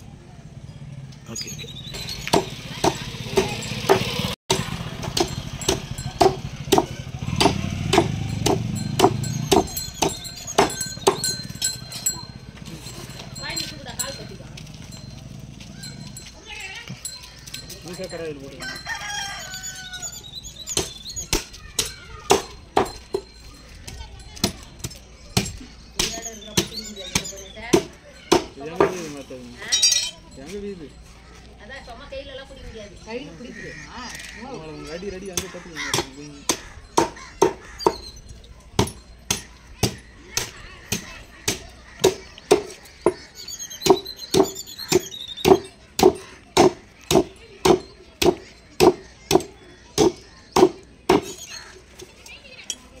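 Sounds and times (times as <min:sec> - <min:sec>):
voices in background: 0:09.8 - 0:53.0.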